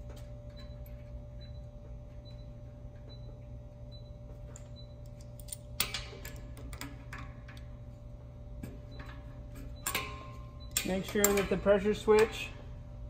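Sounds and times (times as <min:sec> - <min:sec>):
steady low hum: 0:00.0 - 0:13.0
wrench clicking and clinking on metal: 0:04.5 - 0:07.7, 0:09.8 - 0:12.5.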